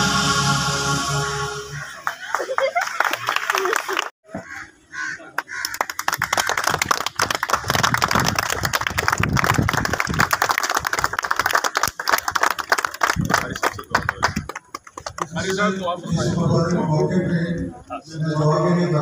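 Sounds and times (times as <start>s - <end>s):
crowd clapping: 1.9s - 4.1s, 5.4s - 15.6s
voices: 13.2s - 19.0s.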